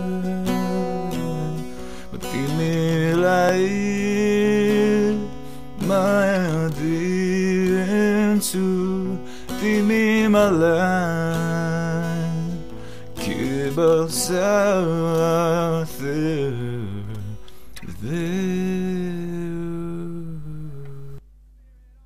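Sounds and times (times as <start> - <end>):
strummed acoustic guitar: 0.0 - 21.2
person singing: 0.0 - 22.0.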